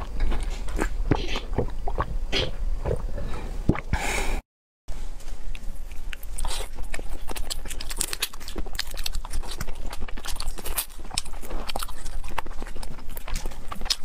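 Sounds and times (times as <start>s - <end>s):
wet chewing: 0.0s - 3.1s, 5.4s - 14.0s.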